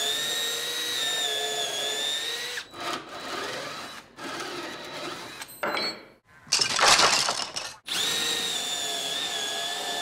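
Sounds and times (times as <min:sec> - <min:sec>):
cordless drill boring into wood: 0:00.0 - 0:05.4, 0:07.9 - 0:10.0.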